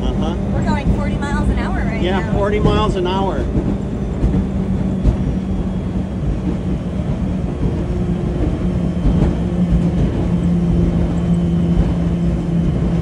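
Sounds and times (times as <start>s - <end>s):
low electric hum: 0.0s - 6.2s
wind rushing over windshield: 0.0s - 13.0s.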